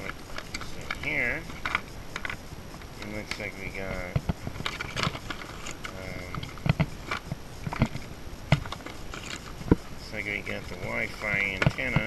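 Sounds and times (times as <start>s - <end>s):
plastic bag rustling: 4.4s - 12.0s.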